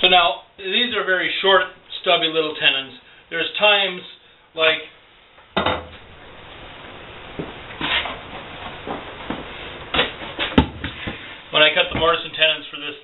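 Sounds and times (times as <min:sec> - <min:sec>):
handling noises: 0:07.2 - 0:12.3.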